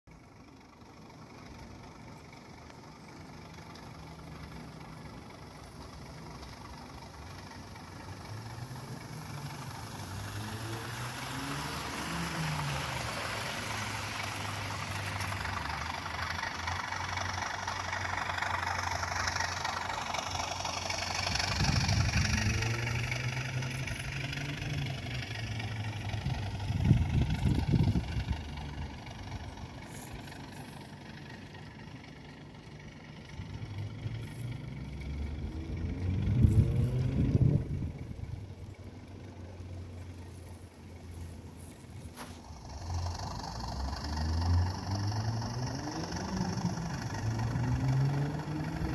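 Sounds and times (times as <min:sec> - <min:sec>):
model train engine hum: 0:00.2 - 0:36.6
wheels rattling on rail: 0:00.2 - 0:48.9.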